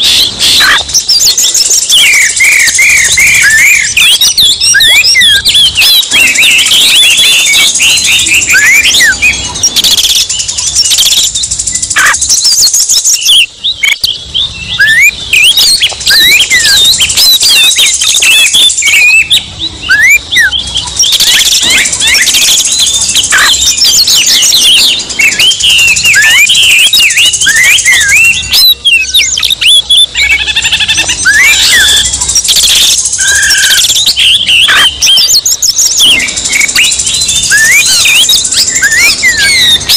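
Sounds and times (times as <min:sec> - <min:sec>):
magpie-robins singing: 0:00.0 - 0:39.9.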